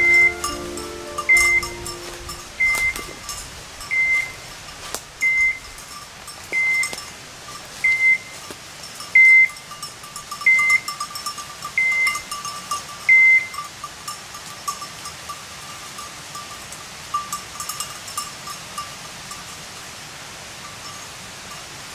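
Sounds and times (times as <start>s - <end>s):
beeper collar high beeps: 0.0s - 3.3s, 3.9s - 4.4s, 7.8s - 8.3s
dog bell jingling: 0.0s - 19.5s.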